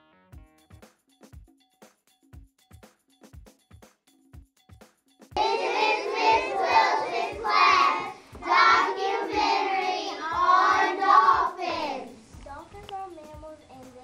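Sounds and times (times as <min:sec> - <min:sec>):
children singing: 0:05.4 - 0:12.2
steady beat: 0:05.4 - 0:14.0.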